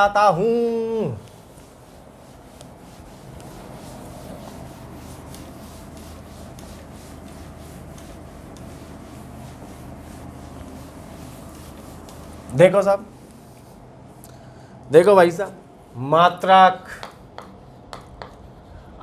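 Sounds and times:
cloth wiping a blackboard: 0.0s - 14.2s.

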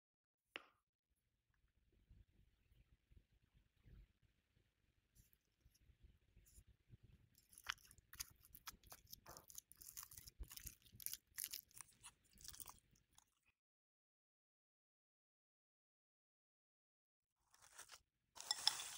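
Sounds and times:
crackling and scraping of food: 5.2s - 13.5s, 17.4s - 18.9s.

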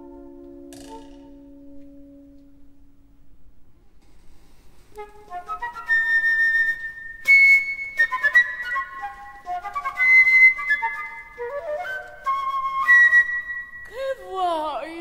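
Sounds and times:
solo flute playing high notes: 0.0s - 2.8s, 5.0s - 14.0s.

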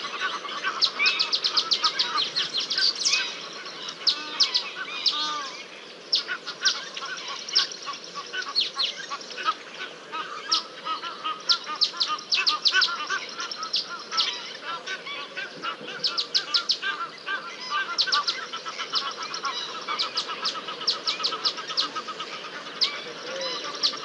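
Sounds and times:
lower repeated bird notes: 0.0s - 24.0s.

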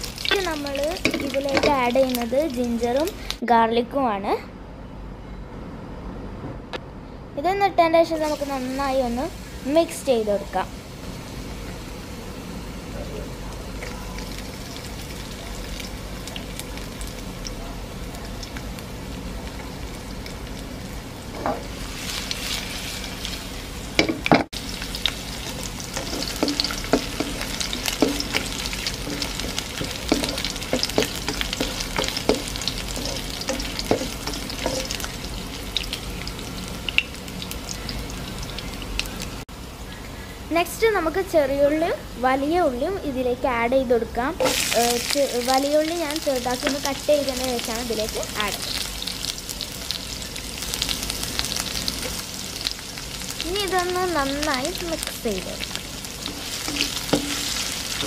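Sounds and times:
frying sizzle in hot oil: 0.0s - 3.4s, 8.0s - 58.0s
spatula scraping and tapping pan: 25.9s - 35.0s, 56.2s - 57.7s.

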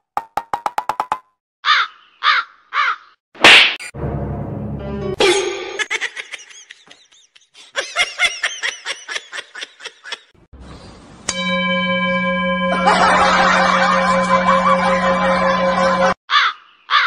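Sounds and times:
person laughing: 5.2s - 10.3s.

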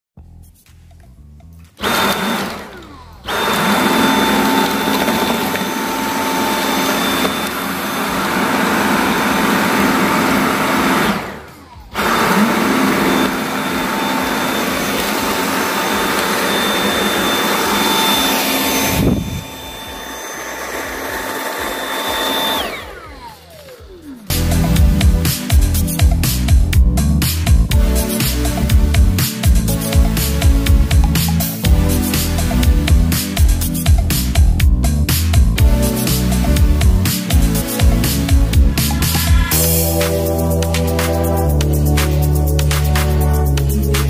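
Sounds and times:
cordless vacuum high whine: 1.8s - 26.1s.

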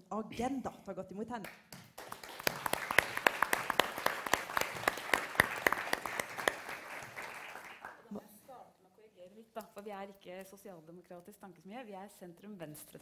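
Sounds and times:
audience applauding: 1.8s - 8.1s.

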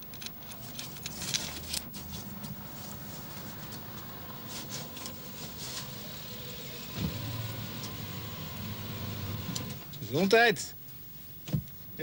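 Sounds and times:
car engine idling: 5.8s - 10.0s.

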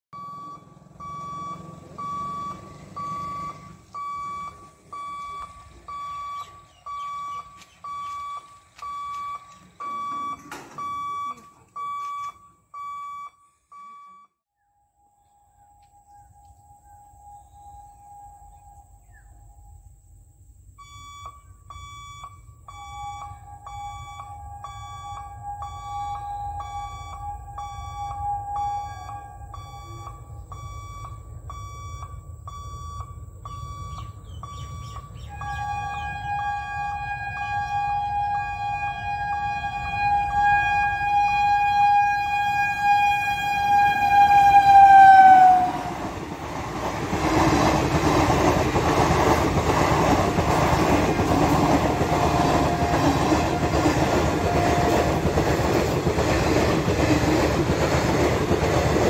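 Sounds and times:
crossing warning beeps: 0.1s - 14.4s, 15.1s - 59.0s
steady high tone: 14.6s - 46.1s.

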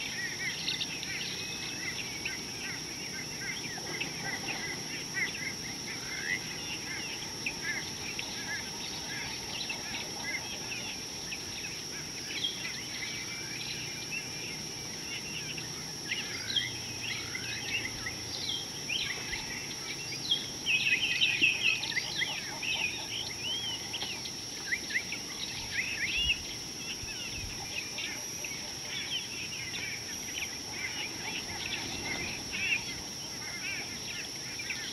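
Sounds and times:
steady high-pitched tone: 0.0s - 34.9s
wild birds chirping: 0.0s - 34.9s.

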